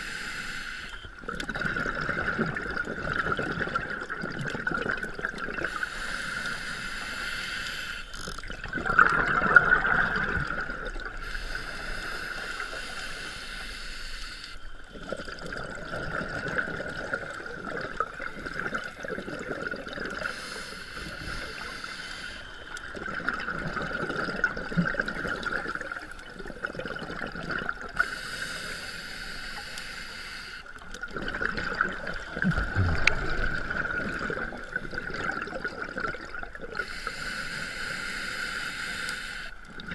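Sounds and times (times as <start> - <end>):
scuba regulator breathing: 0.0 - 1.0, 5.6 - 8.3, 11.1 - 14.8, 20.1 - 22.9, 28.0 - 30.8, 32.6 - 35.3, 36.8 - 39.7.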